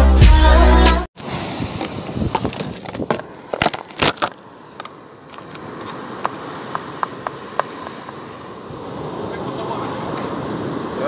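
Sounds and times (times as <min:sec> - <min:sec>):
wind: 0:01.2 - 0:11.0
surf: 0:05.3 - 0:11.0.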